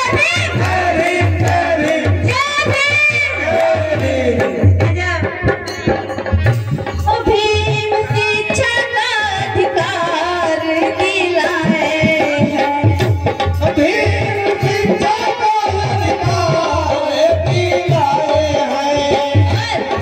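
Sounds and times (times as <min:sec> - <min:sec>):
woman singing: 0:00.0 - 0:00.7, 0:02.1 - 0:03.4, 0:07.0 - 0:13.1
tabla beat: 0:00.0 - 0:20.0.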